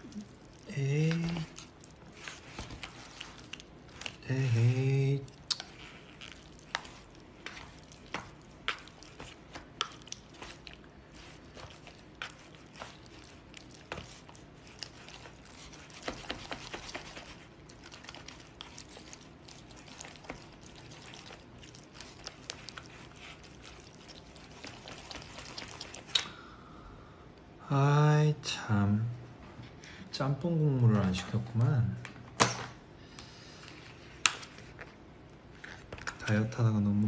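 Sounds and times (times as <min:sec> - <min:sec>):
chopsticks mixing noodles in sauce: 0:00.0 - 0:26.2
chewing: 0:00.0 - 0:26.4
wet squishing: 0:00.0 - 0:26.4.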